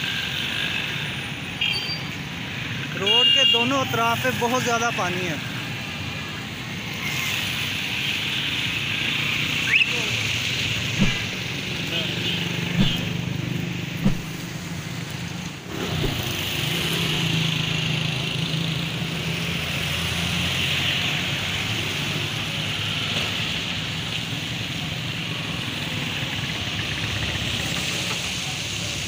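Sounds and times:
motorcycle engines passing: 0.0s - 3.0s, 3.9s - 29.0s
tyres hissing on wet road: 0.0s - 29.0s
sharp knock: 11.0s - 11.4s, 12.8s - 13.2s, 14.0s - 14.4s.

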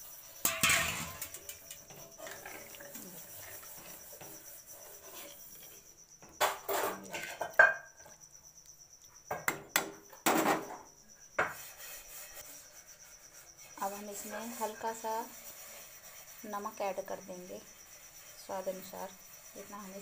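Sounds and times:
high insect trill: 0.0s - 20.0s
ladle scraping metal pan: 0.3s - 7.6s.

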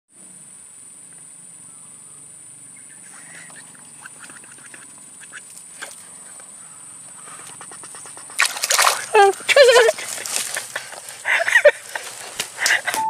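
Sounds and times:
fish splashing in water: 7.6s - 10.8s.

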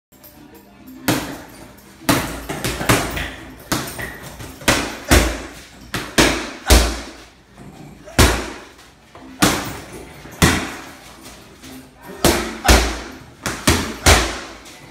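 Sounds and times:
gloves punching heavy bag: 1.1s - 7.3s, 8.0s - 8.7s, 9.4s - 11.0s, 12.2s - 14.6s.

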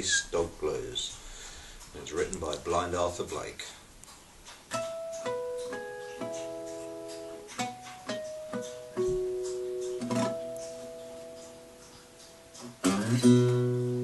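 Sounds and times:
fingerpicked acoustic blues guitar: 4.7s - 14.0s.

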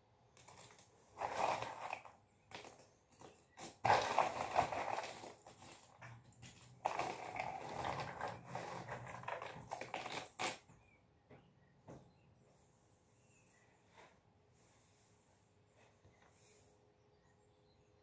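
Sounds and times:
jigsaw pieces rattling: 3.7s - 10.6s.

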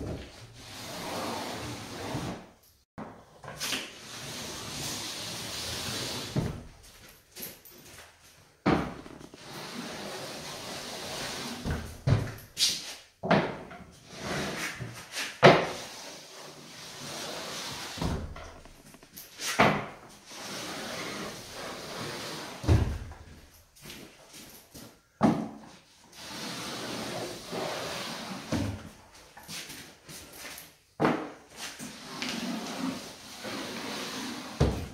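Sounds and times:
scraping hiss on drywall: 9.4s - 11.7s, 14.1s - 18.0s, 26.1s - 28.5s, 31.6s - 34.7s.

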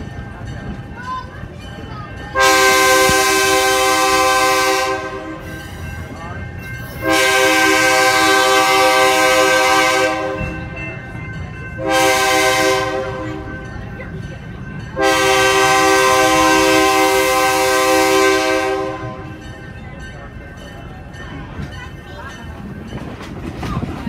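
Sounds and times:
moving train rumble: 0.0s - 24.0s
locomotive air horn blasts: 2.4s - 5.6s, 7.0s - 10.8s, 11.8s - 13.6s, 15.0s - 19.4s.

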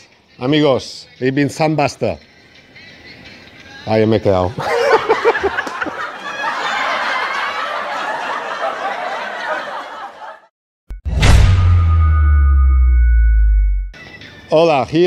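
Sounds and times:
men laughing: 4.5s - 10.5s
deep lingering boom: 10.9s - 13.9s.

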